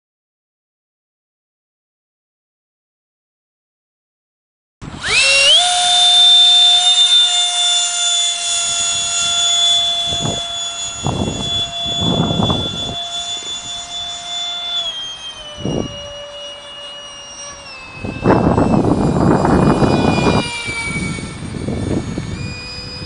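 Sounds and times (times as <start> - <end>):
model jet electric motor whining: 4.8 - 23.0
wind buffeting microphone: 8.2 - 14.3, 15.4 - 16.4, 17.5 - 23.0.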